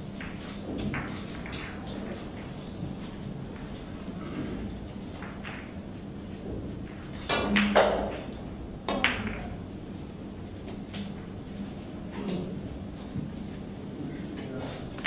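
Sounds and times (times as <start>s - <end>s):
billiard balls clicking: 0.2s - 3.8s, 5.0s - 6.0s, 6.6s - 9.6s
cue striking ball: 3.6s - 5.8s, 6.4s - 9.7s.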